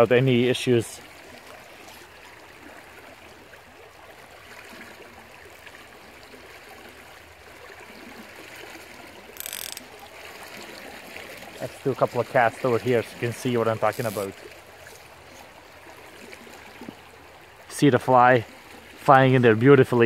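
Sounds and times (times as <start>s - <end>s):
small stream flowing: 0.0s - 20.0s
fly reel ratchet clicking: 9.4s - 9.9s, 13.9s - 14.3s.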